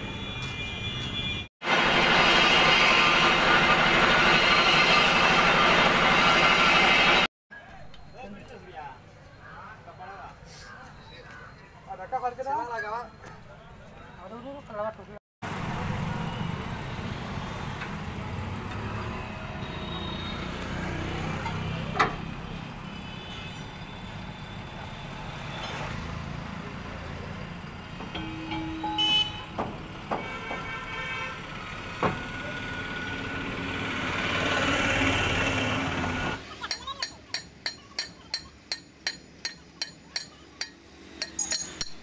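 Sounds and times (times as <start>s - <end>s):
quiet workshop sound: 36.7s - 42.0s.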